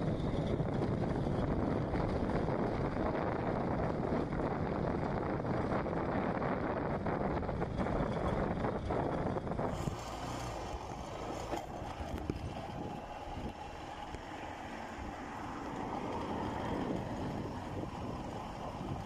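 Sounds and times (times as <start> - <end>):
car engine and tyre noise: 0.0 - 19.0.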